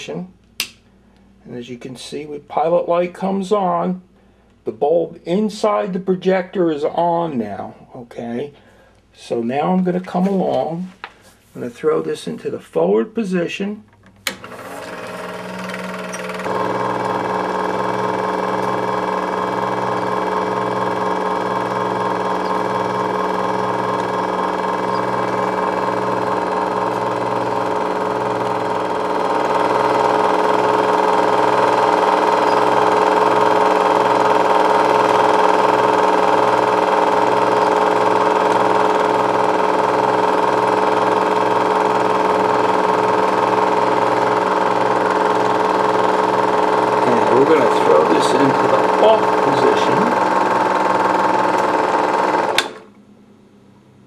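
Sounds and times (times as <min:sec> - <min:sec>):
film projector whirring: 0:14.0 - 0:53.0.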